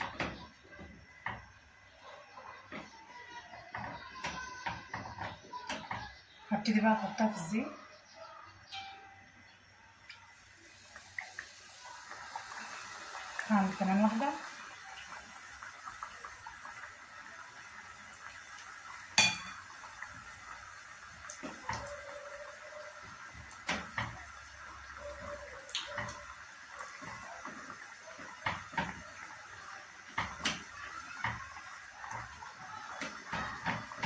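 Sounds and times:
chicken sizzling in hot oil: 10.0s - 34.0s
tongs clinking against dishes: 19.2s - 19.7s.

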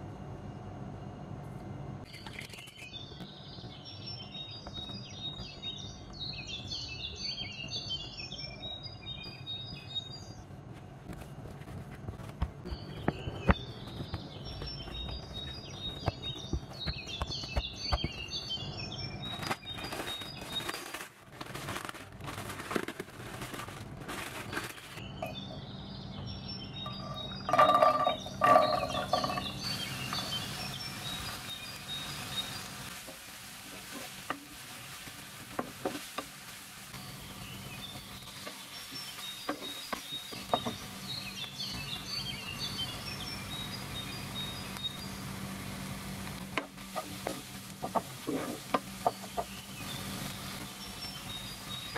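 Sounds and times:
birds chirping: 2.1s - 10.5s, 12.6s - 21.0s, 24.3s - 32.9s, 36.9s - 45.5s, 46.4s - 51.9s
spatula stirring in frying pan: 27.4s - 41.0s, 46.2s - 51.1s.

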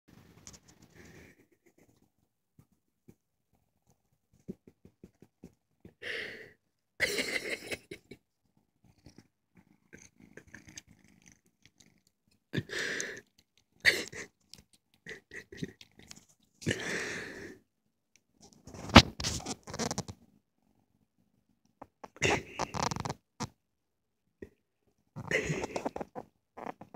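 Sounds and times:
cat purring: 7.5s - 16.3s, 18.5s - 23.5s, 24.4s - 26.9s.

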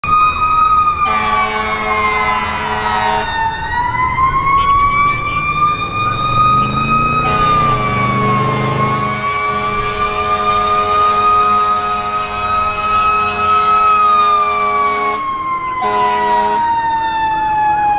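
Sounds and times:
fire engine siren wailing: 0.0s - 17.9s
long horn blasts: 1.0s - 3.3s, 7.2s - 15.2s, 15.8s - 16.6s.

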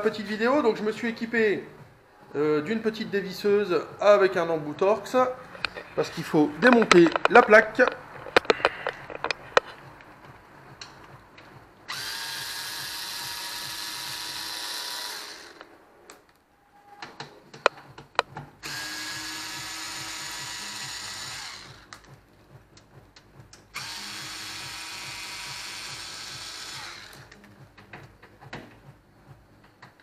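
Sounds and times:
cordless screwdriver motor: 11.9s - 15.7s, 18.6s - 21.9s, 23.8s - 27.4s.

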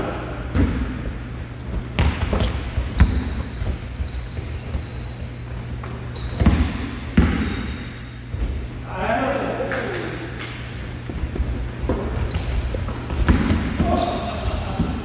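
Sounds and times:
basketball bouncing on wooden floor: 0.5s - 5.2s, 5.8s - 7.7s, 11.0s - 15.0s
thin high squeaks: 2.5s - 7.2s.

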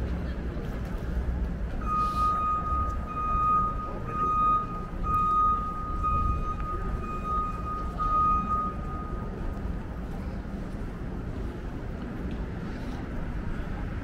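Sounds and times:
street traffic rumble: 0.0s - 14.0s
vehicle reversing alarm beeping: 1.8s - 9.8s.

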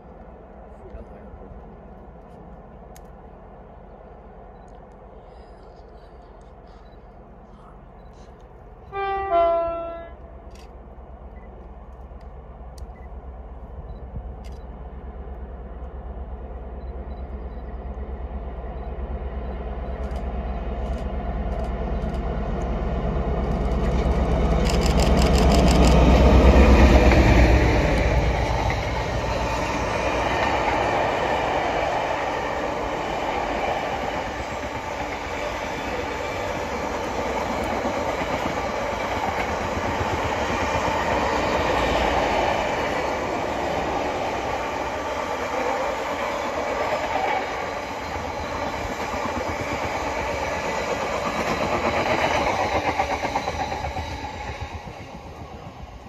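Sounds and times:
locomotive engine rumble: 0.0s - 8.9s.

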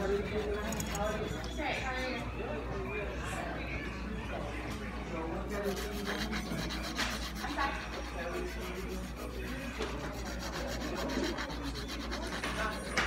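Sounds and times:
nail file rasping fingernails: 0.0s - 1.2s, 5.5s - 13.0s.

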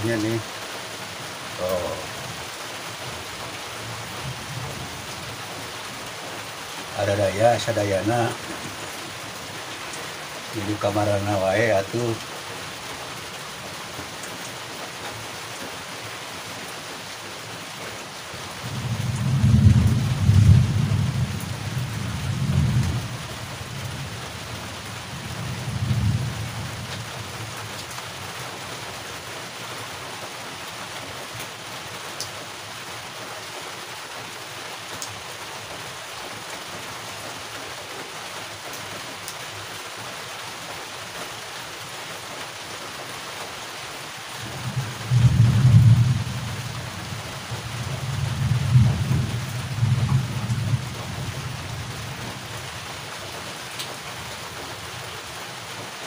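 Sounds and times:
heavy rain hissing: 0.0s - 56.0s
thunder rumbling: 18.6s - 24.0s, 25.2s - 26.6s, 44.4s - 51.9s.

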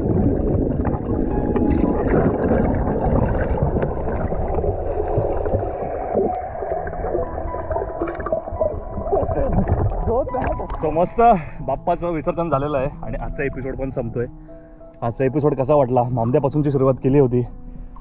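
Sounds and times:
air bubbles underwater: 0.0s - 10.9s
muffled underwater water rushing: 0.0s - 11.6s.

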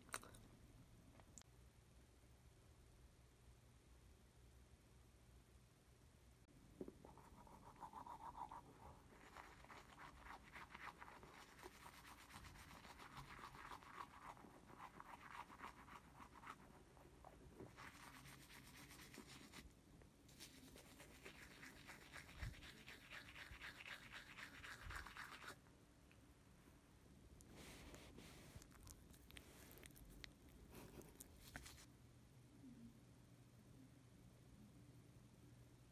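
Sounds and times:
toothbrush scrubbing: 7.0s - 19.6s, 20.3s - 25.6s.

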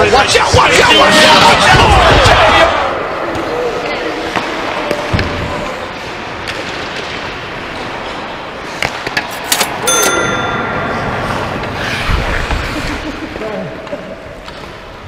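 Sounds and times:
ice skating: 3.2s - 9.8s, 10.6s - 15.0s
metallic clang: 9.5s - 12.1s.

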